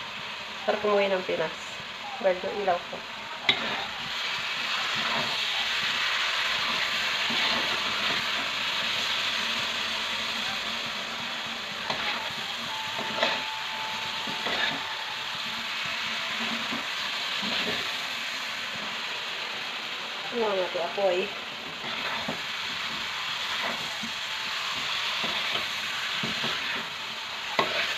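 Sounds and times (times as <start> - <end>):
food sizzling in a wok: 0.0 - 27.9
metal spatula scraping a wok: 3.4 - 5.5, 6.5 - 9.0, 11.8 - 13.6, 14.2 - 15.3, 21.6 - 23.9, 27.5 - 27.9.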